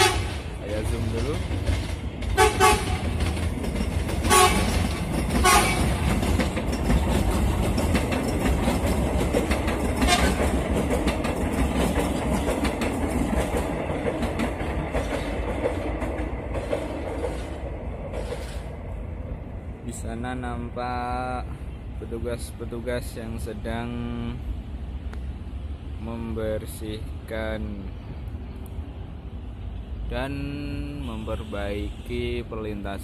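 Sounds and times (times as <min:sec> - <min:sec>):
train horn toots: 0:00.0 - 0:00.4, 0:02.4 - 0:03.1, 0:04.3 - 0:04.8, 0:05.4 - 0:05.9, 0:10.0 - 0:10.5
rail clatter: 0:00.0 - 0:20.1
electric train rumbling past: 0:00.0 - 0:33.0.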